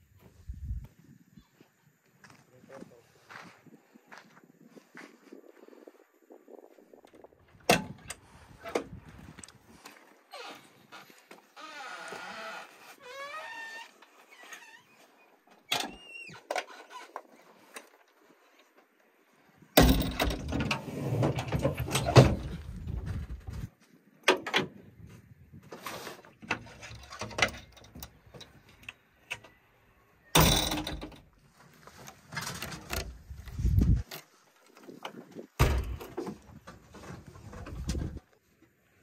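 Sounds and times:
cab door clunks and rattles: 19.8 - 23.6, 35.6 - 36.7.

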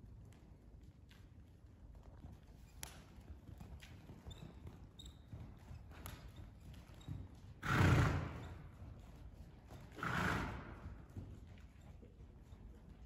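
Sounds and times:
muffled hoofbeats on sand: 6.6 - 13.0.

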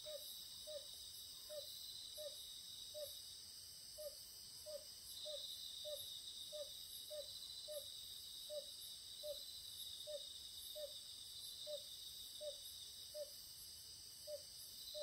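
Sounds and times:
crickets and insects trilling: 0.0 - 15.0.

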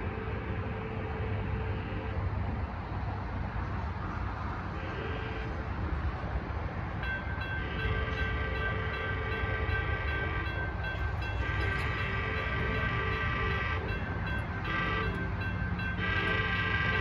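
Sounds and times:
train horn blasts: 0.0 - 2.2, 4.8 - 5.8, 7.4 - 17.0
crossing bell ringing: 6.9 - 17.0.

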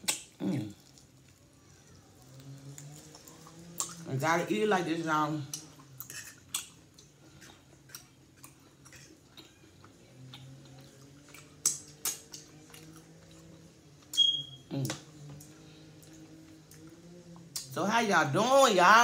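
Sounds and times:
chewing: 0.0 - 4.1, 5.4 - 17.8
fork scraping on a plate: 6.0 - 6.7.

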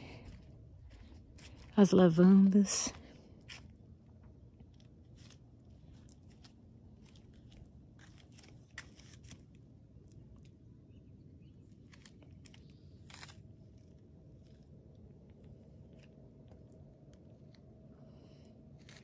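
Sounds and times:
faint low rumble: 0.0 - 19.0
soft clicks and crunches: 3.4 - 10.6, 11.7 - 17.9, 18.7 - 19.0.

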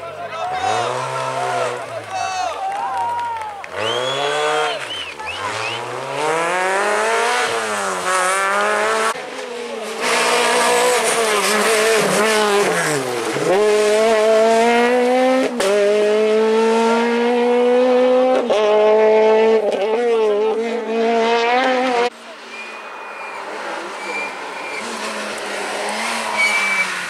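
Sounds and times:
rally car engine revving: 0.0 - 2.5, 3.6 - 27.0
tyre squeal: 22.5 - 25.0, 26.0 - 27.0.

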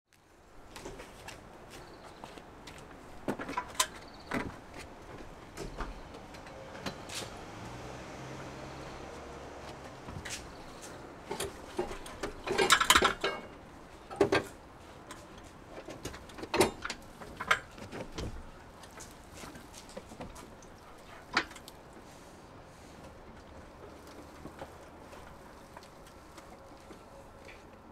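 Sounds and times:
motorcycle clunking and rattling: 3.1 - 21.9.

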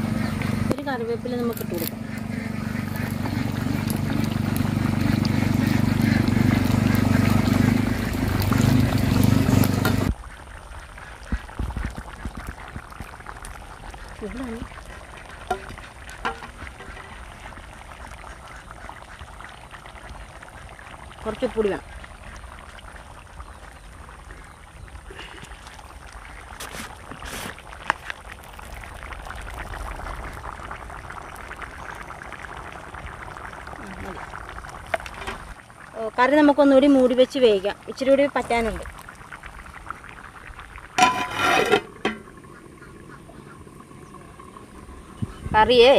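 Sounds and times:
curry bubbling in a pot: 0.0 - 45.9
liquid pouring from a ladle: 11.0 - 21.2, 38.9 - 42.8.

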